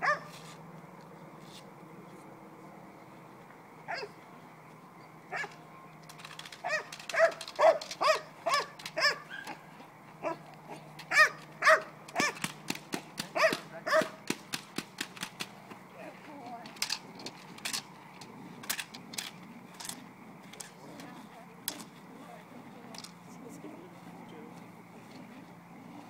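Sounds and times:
dog barking: 0.0s - 0.3s, 3.9s - 4.2s, 5.3s - 5.6s, 6.6s - 9.6s, 10.2s - 10.4s, 11.1s - 12.4s, 13.3s - 14.2s
sharp cracks: 5.4s - 9.6s, 11.0s - 15.8s, 16.4s - 21.9s.

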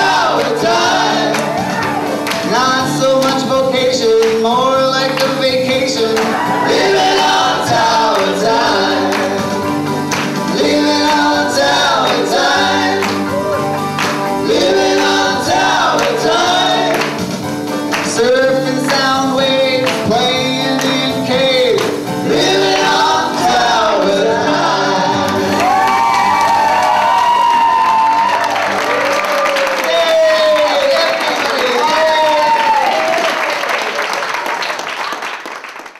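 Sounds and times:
people singing together: 0.0s - 27.8s
live band playing: 0.0s - 32.1s.

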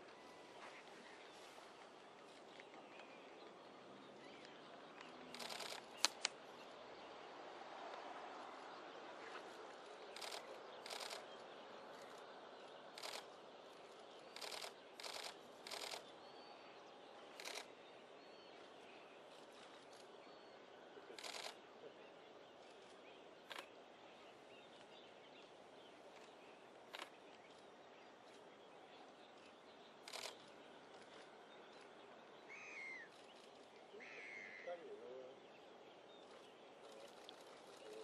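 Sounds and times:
faint outdoor background noise: 0.0s - 38.0s
sharp camera clicks: 5.0s - 6.4s, 10.1s - 11.4s, 12.9s - 13.3s, 14.3s - 16.1s, 17.4s - 17.7s, 21.1s - 21.6s, 22.7s - 23.7s, 30.0s - 30.5s
camera shutter bursts: 5.3s - 6.3s, 10.2s - 11.3s, 13.0s - 13.3s, 14.4s - 16.0s, 17.4s - 17.7s, 21.2s - 21.6s, 30.1s - 30.4s.

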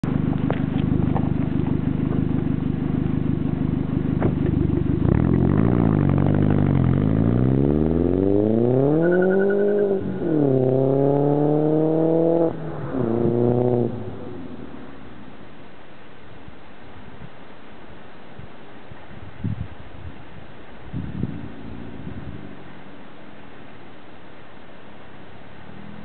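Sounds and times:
car engine accelerating: 0.0s - 15.6s.

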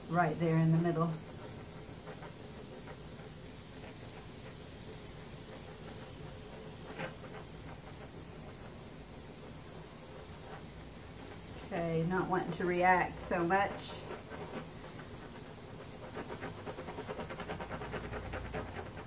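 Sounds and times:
butane torch hissing: 0.0s - 19.0s.

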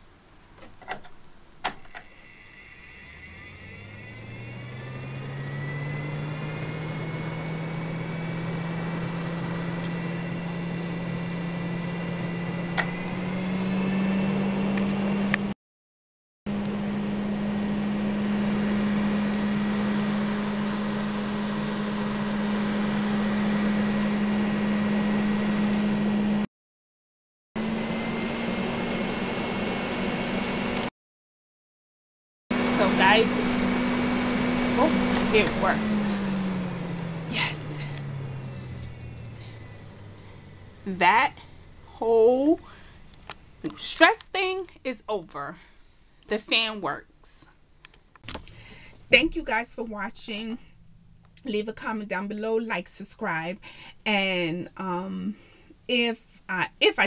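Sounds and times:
fan motor hum: 1.6s - 15.5s, 16.5s - 26.4s, 32.5s - 44.9s.

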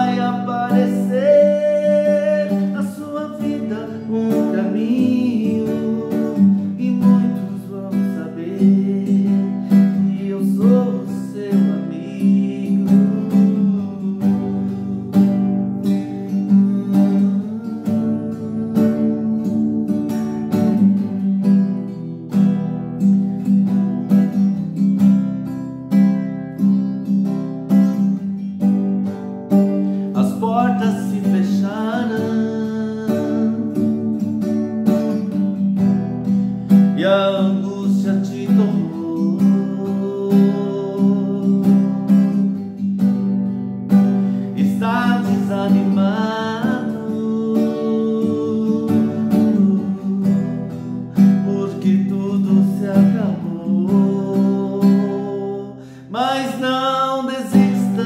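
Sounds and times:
man singing a hymn: 0.0s - 15.5s, 16.3s - 19.5s, 30.1s - 34.0s, 36.9s - 42.2s, 44.4s - 58.0s
acoustic guitar strumming: 0.0s - 58.0s.

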